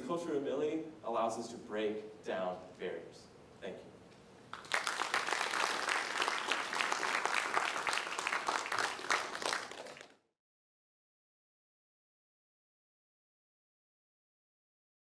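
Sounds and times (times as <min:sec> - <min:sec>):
audience applauding: 0:04.5 - 0:10.2.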